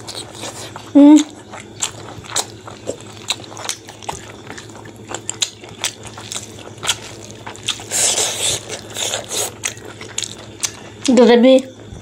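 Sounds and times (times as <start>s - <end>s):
open-mouthed chewing: 0.0s - 11.3s.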